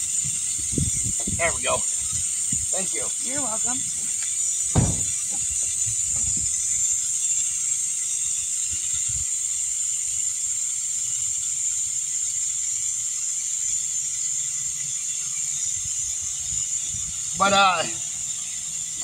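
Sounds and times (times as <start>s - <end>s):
air hissing out of tire: 0.0s - 19.0s
dull knocks: 4.7s - 6.4s.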